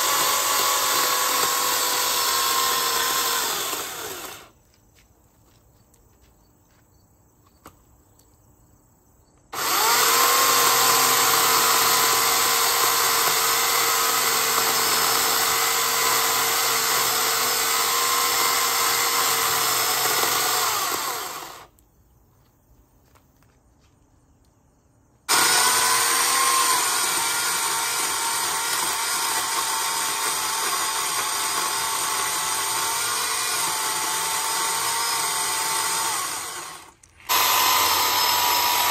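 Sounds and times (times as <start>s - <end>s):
electric chainsaw cutting wood: 0.0s - 4.6s, 9.6s - 21.7s, 25.3s - 38.9s.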